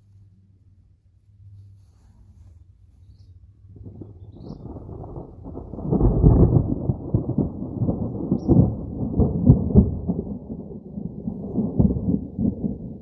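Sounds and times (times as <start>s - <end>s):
thunder rumbling: 3.6s - 13.0s.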